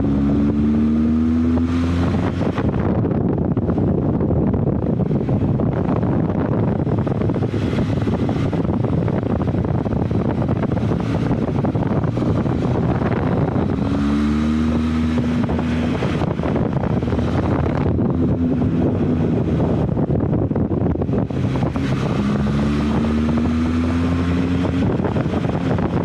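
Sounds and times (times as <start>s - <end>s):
motorcycle engine running: 0.0s - 26.0s
wind buffeting microphone: 0.0s - 26.0s
steady pitched tone: 6.1s - 24.9s.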